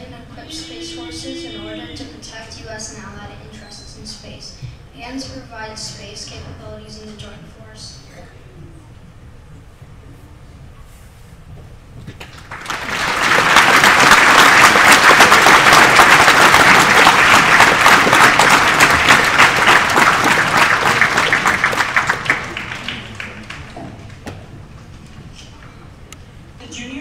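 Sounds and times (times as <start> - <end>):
audience applauding: 12.2 - 24.3.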